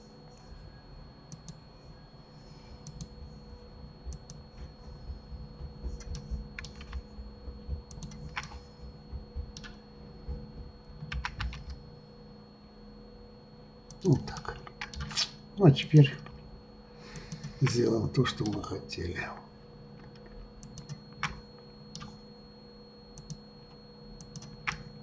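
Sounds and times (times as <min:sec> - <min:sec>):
faint electrical hum: 0:00.0 - 0:25.0
keyboard and mouse clicks: 0:06.0 - 0:07.0, 0:07.9 - 0:08.6, 0:11.0 - 0:11.8, 0:13.9 - 0:15.3, 0:20.0 - 0:22.2, 0:24.2 - 0:24.9.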